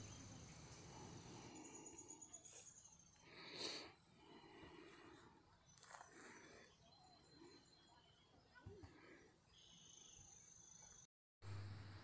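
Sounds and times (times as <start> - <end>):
faint high steady tone: 5.6 - 11.1.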